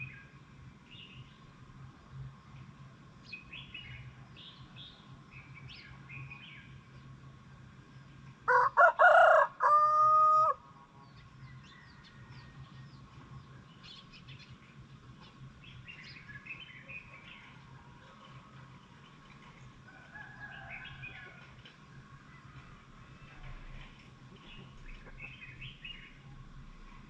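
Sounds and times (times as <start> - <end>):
small birds chirping: 0.0 - 8.4, 11.0 - 27.0
rooster crowing: 8.5 - 10.6, 11.5 - 12.7, 19.9 - 21.6.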